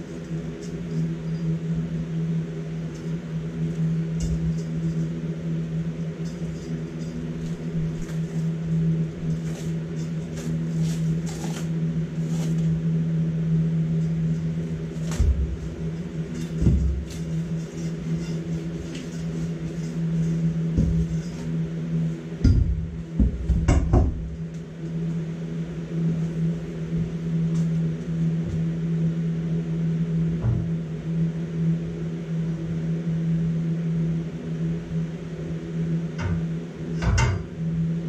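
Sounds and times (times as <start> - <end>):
low machine hum: 0.0 - 38.0
dull thumps: 22.4 - 24.3.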